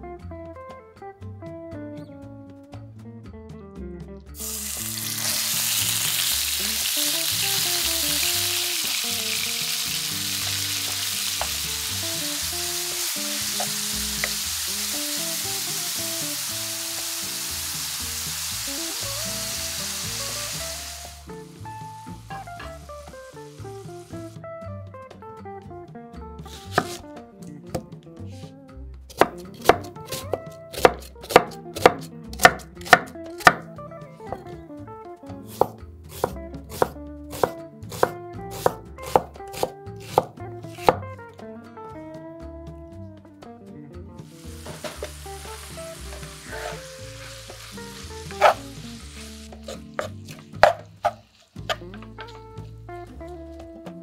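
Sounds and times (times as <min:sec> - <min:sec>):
meat and onions sizzling in pan: 0:04.4 - 0:24.4, 0:44.2 - 0:52.8
knife chopping on wooden board: 0:13.6 - 0:14.4, 0:26.5 - 0:27.0, 0:29.1 - 0:33.7, 0:35.5 - 0:41.0, 0:47.5 - 0:48.6, 0:49.5 - 0:52.3
wooden spatula knocking on pan: 0:49.6 - 0:52.2.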